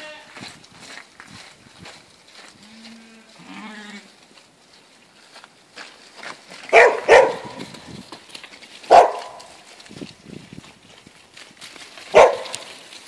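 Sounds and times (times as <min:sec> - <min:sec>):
sheep bleating: 0:00.0 - 0:00.3, 0:02.6 - 0:04.1
dog barking: 0:06.7 - 0:07.6, 0:08.9 - 0:09.5, 0:12.1 - 0:12.7.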